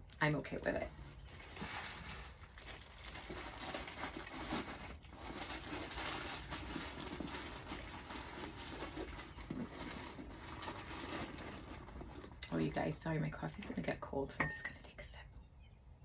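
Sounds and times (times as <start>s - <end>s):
handbag rustling and crinkling: 0.6s - 12.7s.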